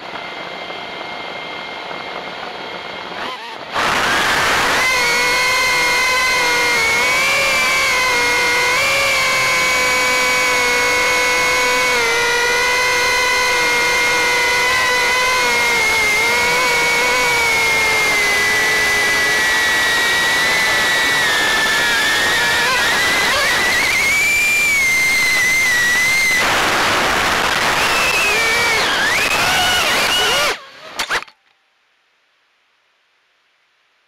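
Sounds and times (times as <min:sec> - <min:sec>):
drone propellers whining: 0:00.0 - 0:31.3.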